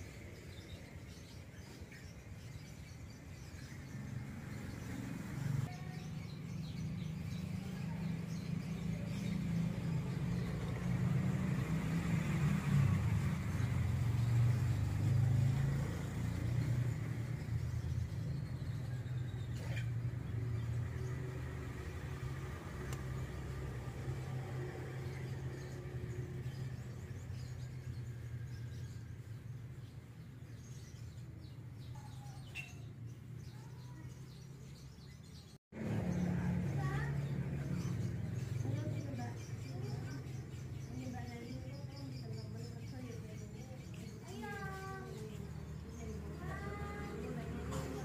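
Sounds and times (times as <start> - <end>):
faint high bird chirps: 22.0 - 35.6.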